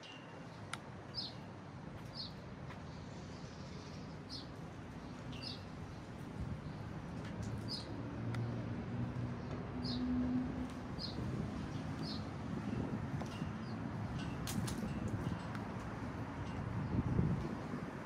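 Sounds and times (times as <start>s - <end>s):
bird chirping: 3.7s - 5.7s.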